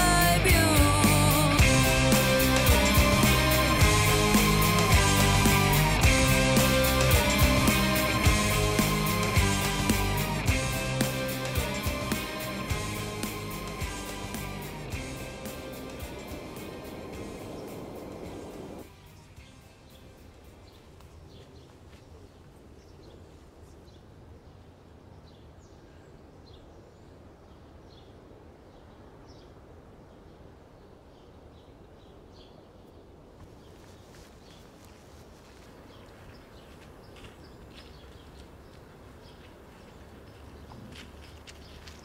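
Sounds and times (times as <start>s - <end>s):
low steady rumble: 12.6s - 18.9s.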